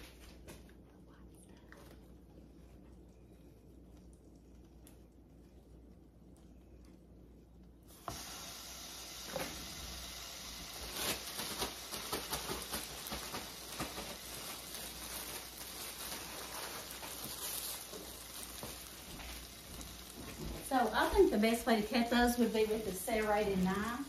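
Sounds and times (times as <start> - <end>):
sandwich sizzling in a frying pan: 7.9 - 24.0.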